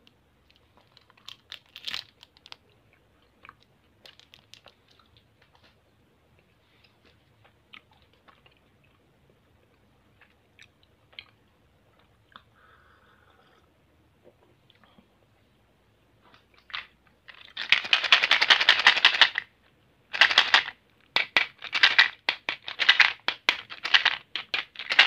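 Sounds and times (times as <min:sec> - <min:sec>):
candy wrappers crinkling: 0:00.4 - 0:02.8, 0:03.6 - 0:05.6, 0:16.5 - 0:19.5, 0:20.1 - 0:25.0.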